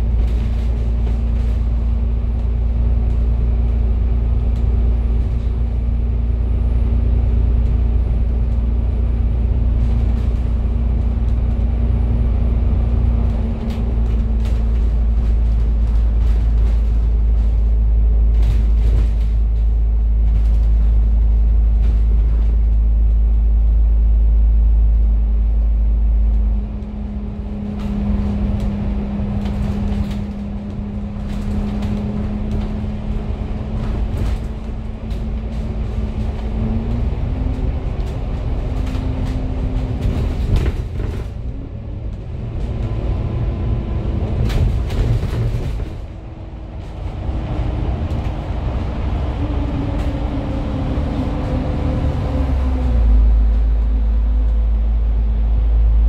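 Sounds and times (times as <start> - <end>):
bus engine hum: 0.0 - 56.0
deep road rumble: 0.0 - 56.0.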